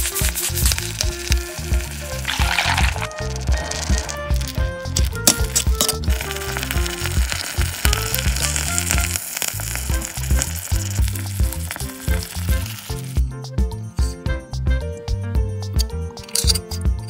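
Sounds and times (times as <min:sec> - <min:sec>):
sauce sizzling in a wok: 0:00.0 - 0:13.2
background music with bass line: 0:00.0 - 0:17.0.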